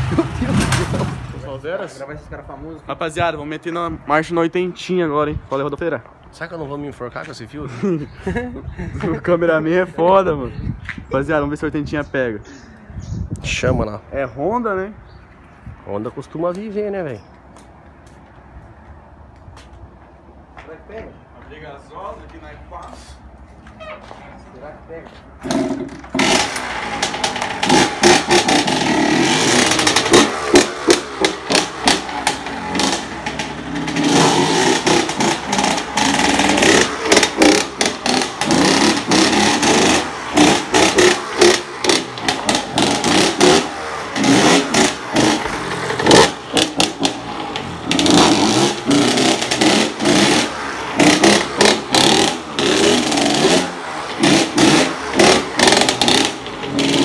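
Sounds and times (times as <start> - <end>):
motocross bike engine revving: 0.0 - 1.6, 25.4 - 57.0.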